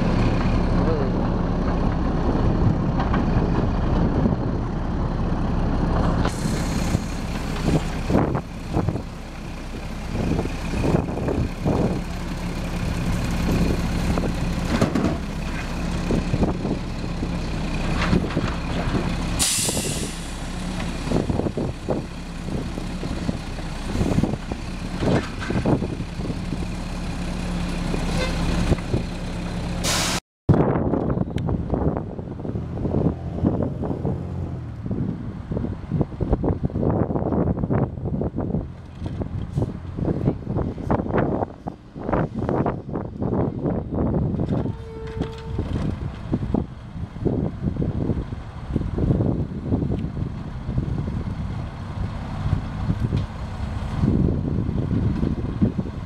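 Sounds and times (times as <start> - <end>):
diesel engine running: 0.0 - 56.0
air brake hiss: 19.4 - 20.3, 29.8 - 30.2.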